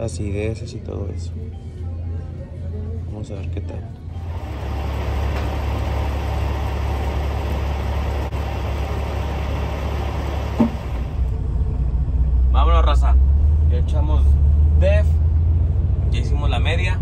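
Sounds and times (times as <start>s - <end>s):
diesel truck engine idling: 4.1s - 13.6s.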